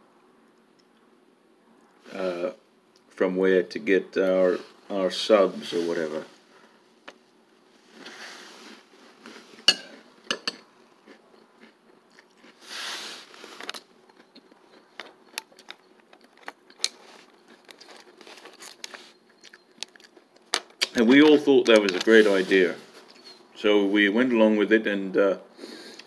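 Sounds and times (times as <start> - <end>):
metal spoon clinking ceramic bowl: 9.7 - 10.6
crunchy chewing: 10.8 - 21.0.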